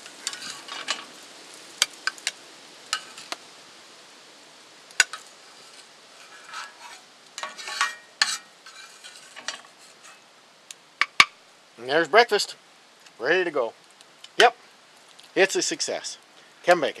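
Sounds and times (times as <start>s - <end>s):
faint pan sizzle: 0.0s - 17.0s
plastic spatula scraping pan: 5.5s - 10.2s.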